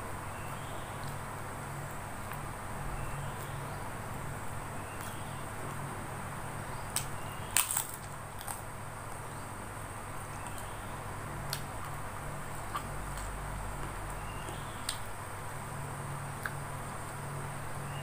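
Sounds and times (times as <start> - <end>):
low hum and hiss: 0.0 - 18.0
cracker crunching: 6.9 - 9.2, 11.4 - 15.1.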